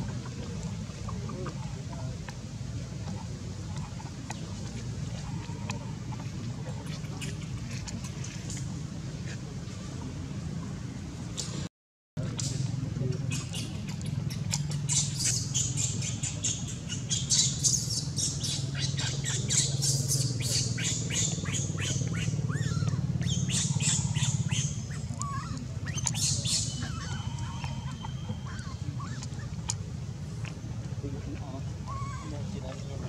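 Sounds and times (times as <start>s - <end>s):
steady low hum: 0.0s - 33.0s
baby monkey squeaking and squealing: 13.3s - 29.7s.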